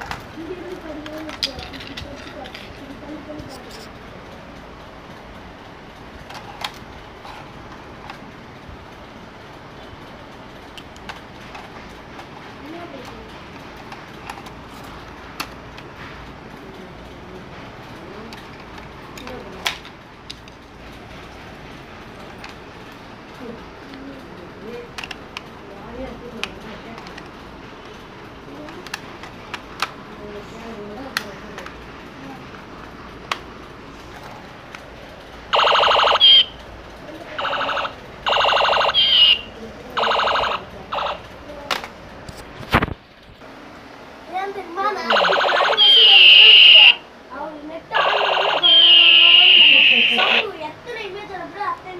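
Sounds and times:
steady background noise: 0:00.0 - 0:51.9
toy gun shooting sound effect: 0:35.6 - 0:36.5, 0:37.4 - 0:41.2, 0:45.1 - 0:47.0, 0:48.0 - 0:50.5.

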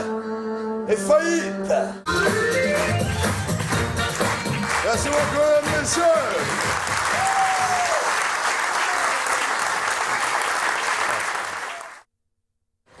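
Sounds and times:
audience applauding: 0:02.8 - 0:12.1.

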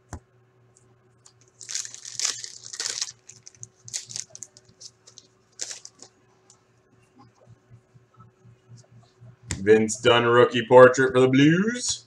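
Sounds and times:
wrapper crinkling: 0:01.2 - 0:06.2
card pack wrapper tearing: 0:01.4 - 0:06.1.

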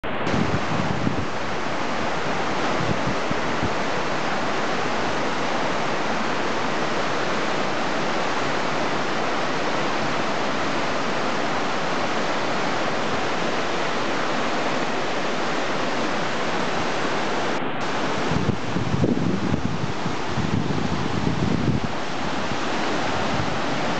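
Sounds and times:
river rushing over rocks: 0:00.0 - 0:23.9.

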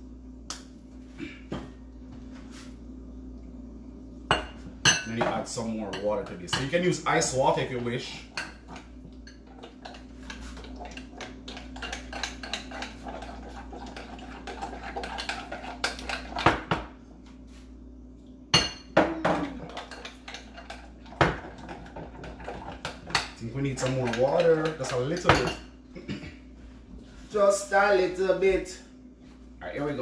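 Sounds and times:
utensil clinking against glass bowl: 0:22.3 - 0:25.7.

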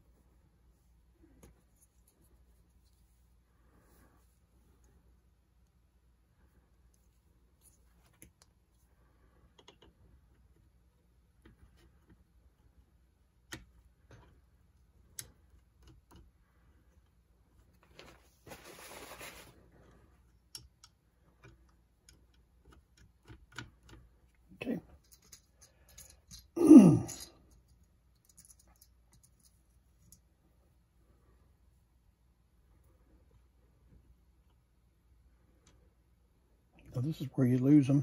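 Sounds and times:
clicks of parts and tools handled: 0:20.4 - 0:30.3.

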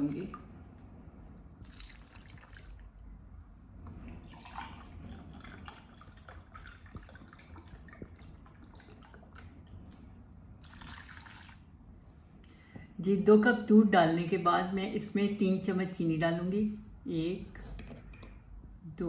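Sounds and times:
milk pouring and splashing: 0:01.6 - 0:03.0, 0:03.9 - 0:11.8
faint drips: 0:03.8 - 0:11.7.

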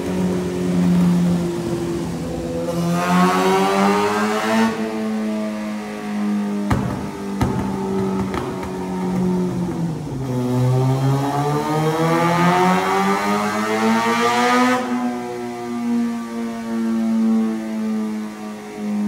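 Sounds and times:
motorcycle engine revving: 0:00.0 - 0:16.0
exhaust cracks: 0:06.7 - 0:10.6.

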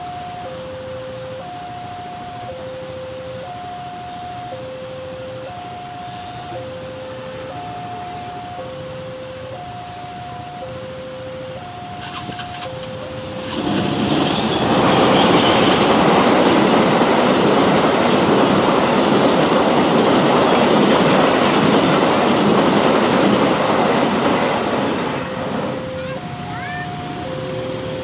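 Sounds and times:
two-tone crossing warning bell: 0:00.0 - 0:28.0
train wheels rushing on rails: 0:11.7 - 0:28.0.

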